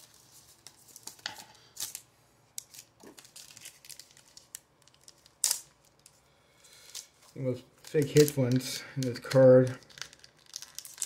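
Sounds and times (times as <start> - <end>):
foil wrapper tearing and crinkling: 2.6 - 6.1, 7.8 - 11.0.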